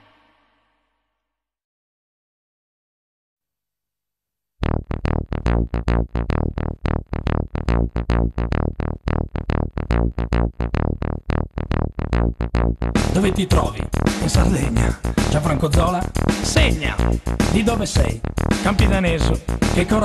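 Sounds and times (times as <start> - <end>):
heavy bass: 4.6 - 20.0
synthesizer playing repeated chords: 4.6 - 20.0.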